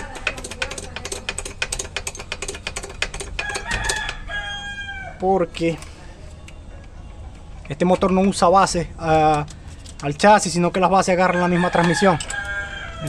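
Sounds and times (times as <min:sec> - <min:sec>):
rooster crowing: 0:03.4 - 0:05.2, 0:11.3 - 0:13.0
light metal clinking and rattling: 0:05.5 - 0:12.8.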